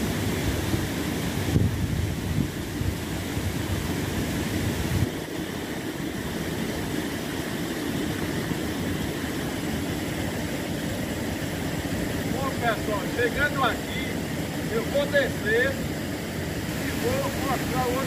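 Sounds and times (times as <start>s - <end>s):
wind rumble on microphone: 0.0s - 10.0s
river water over rocks: 0.0s - 18.0s.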